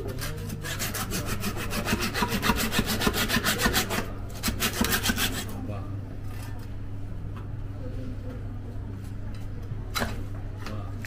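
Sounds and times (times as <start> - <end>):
saw blade rasping through fish: 0.0 - 5.5.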